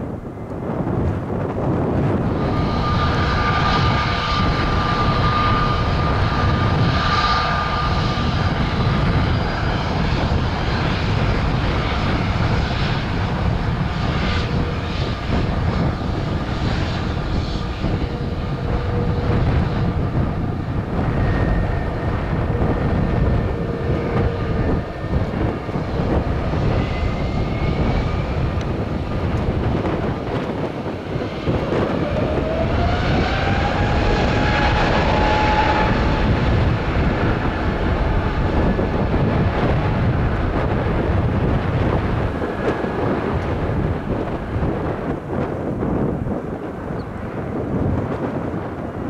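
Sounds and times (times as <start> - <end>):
jet engines at take-off thrust: 0.0 - 49.0.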